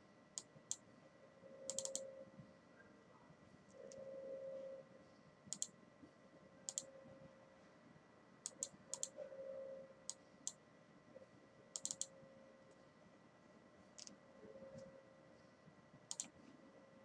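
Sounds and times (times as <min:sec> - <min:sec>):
faint steady hum: 0:00.0 - 0:17.0
computer mouse clicking: 0:01.7 - 0:02.1, 0:05.5 - 0:05.7, 0:06.7 - 0:06.9, 0:08.4 - 0:09.2, 0:11.7 - 0:12.1, 0:14.0 - 0:14.2, 0:16.1 - 0:16.4.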